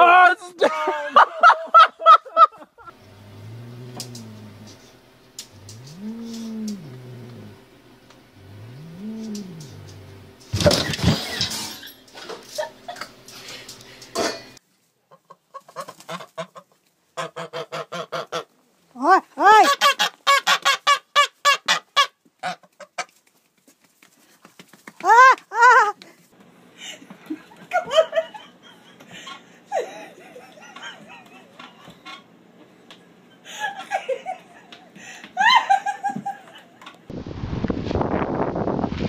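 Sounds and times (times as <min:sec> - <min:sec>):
wind blowing on microphone: 0:37.1 - 0:39.0.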